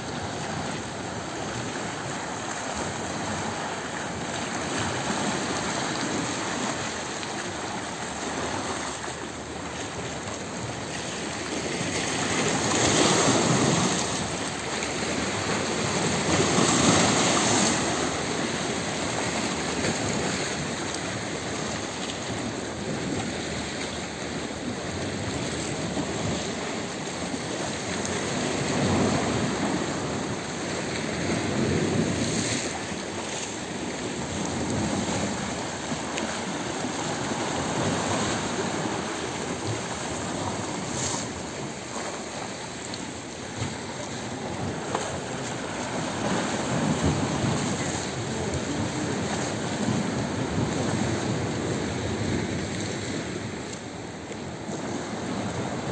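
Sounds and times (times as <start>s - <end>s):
sea waves washing against rocks: 0.0s - 55.9s.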